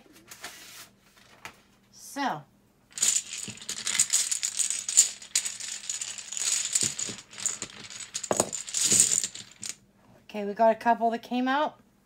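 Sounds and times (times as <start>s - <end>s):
dominoes clattering: 2.9s - 9.8s.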